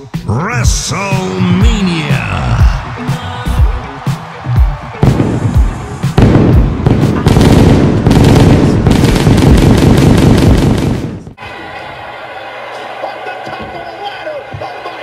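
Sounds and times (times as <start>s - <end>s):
fireworks bangs and crackles: 5.0s - 11.4s.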